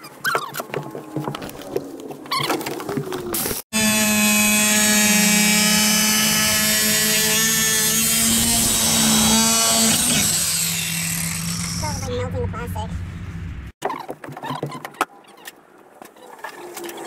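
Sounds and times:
angle grinder motor whine: 3.8s - 12.0s.

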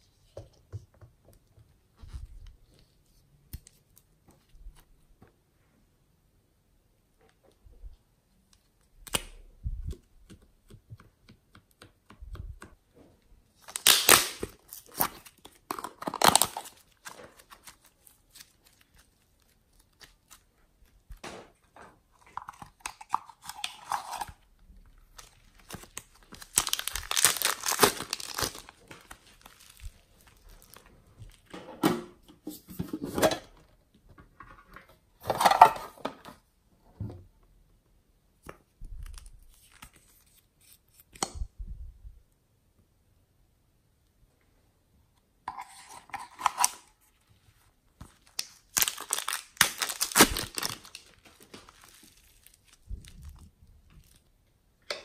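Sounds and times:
sticky slime tearing and crinkling: 13.6s - 20.4s, 25.1s - 31.4s, 48.1s - 53.4s.

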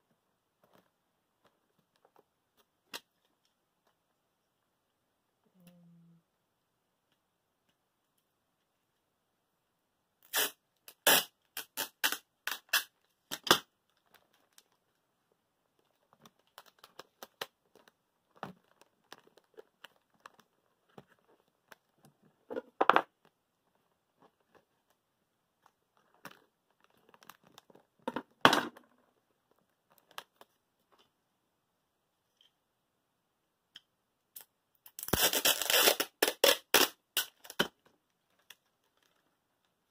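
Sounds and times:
tape ripped off roll: 10.3s - 13.7s, 35.0s - 37.7s
paper and tape crinkling: 10.3s - 15.0s, 15.7s - 25.0s, 25.6s - 28.0s, 34.9s - 39.7s.

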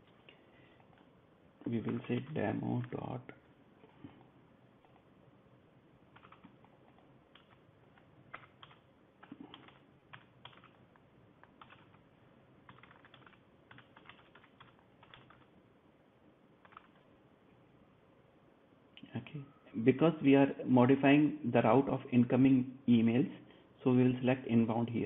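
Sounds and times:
faint keyboard typing: 0.0s - 5.1s, 6.0s - 15.6s, 16.6s - 17.2s.

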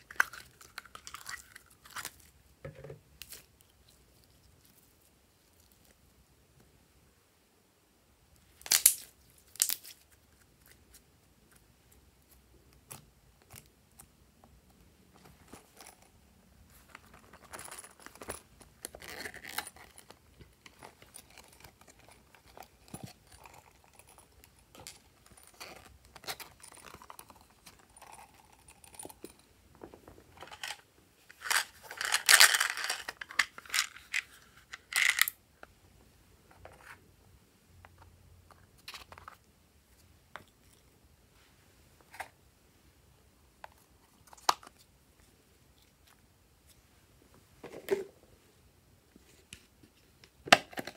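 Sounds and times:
plastic containers clicking and rattling: 17.0s - 30.8s, 31.4s - 35.4s.

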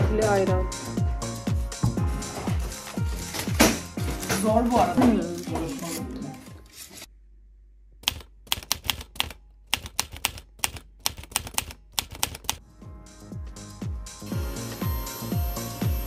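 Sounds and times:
typewriter key clacks: 8.0s - 12.6s.

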